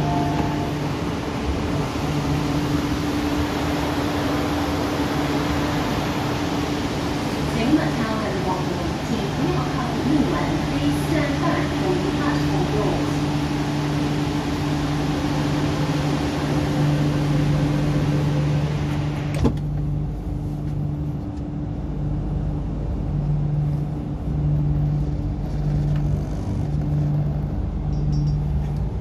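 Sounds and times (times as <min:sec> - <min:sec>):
sliding train doors closing: 0:00.0 - 0:14.6, 0:18.0 - 0:19.9
loud station noise: 0:00.0 - 0:17.2
train low hum: 0:00.0 - 0:29.0.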